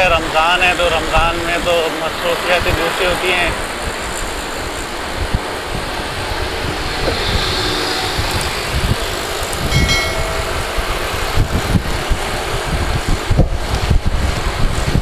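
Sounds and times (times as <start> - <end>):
road and traffic noise: 0.0 - 15.0
wind rumble on microphone: 0.0 - 15.0
brief high tone: 9.7 - 10.9.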